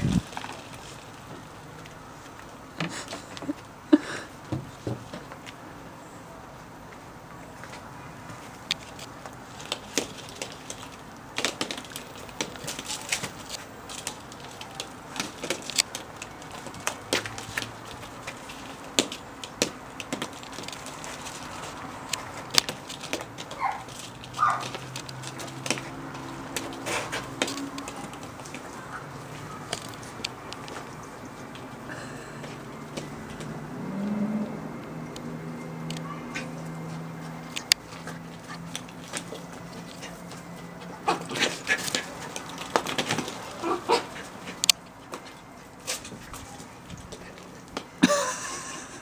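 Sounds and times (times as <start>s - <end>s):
plastic balls clicking and crackling: 8.6s - 30.9s.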